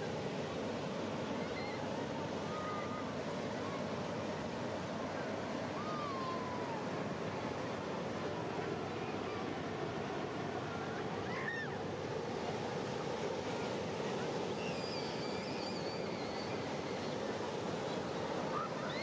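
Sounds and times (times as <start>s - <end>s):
ocean surf: 0.0s - 19.0s
wind: 0.0s - 19.0s
faint wavering high whistle: 14.6s - 17.1s.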